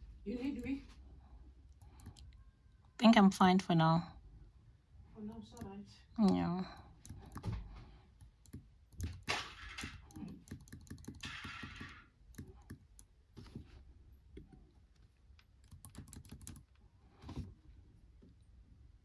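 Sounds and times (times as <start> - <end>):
laptop keys clicking: 1.8 - 2.4, 6.8 - 7.5, 8.2 - 9.3, 10.1 - 13.1, 15.0 - 16.8.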